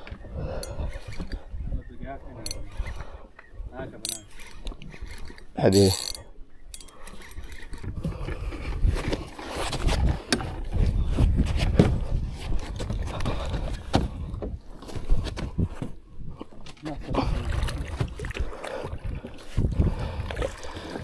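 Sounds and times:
knocks and scrapes of fishing rod: 0.0s - 1.6s, 4.0s - 18.4s
wind and handling rumble: 0.0s - 21.0s.

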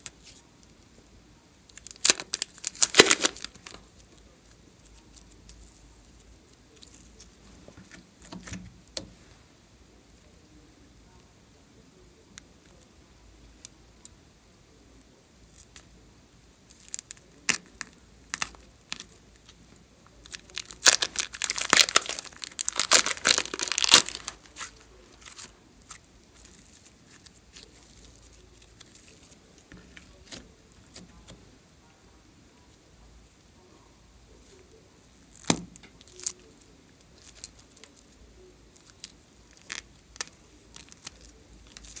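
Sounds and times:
plastic bag crinkling and tearing: 1.8s - 4.1s, 20.2s - 31.0s, 38.8s - 42.0s.

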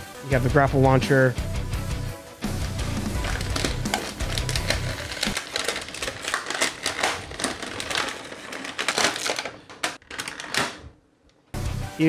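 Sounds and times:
plastic tray crinkling: 3.0s - 11.0s.

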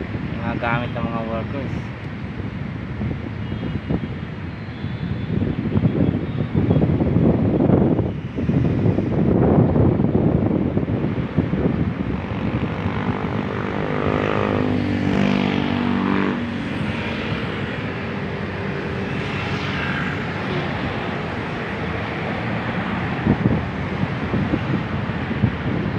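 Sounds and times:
aircraft passing overhead: 11.9s - 25.1s.

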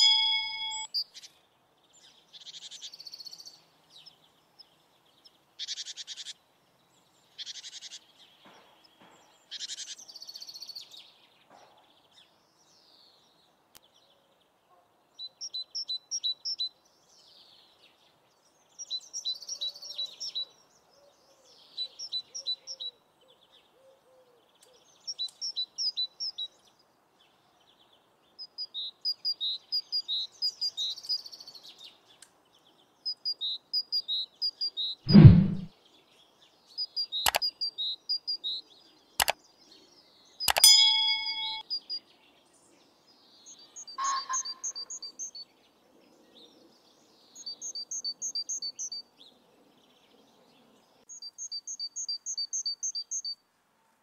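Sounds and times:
buzzy bird trills: 0.0s - 0.9s
songbirds chirping: 0.0s - 54.0s.

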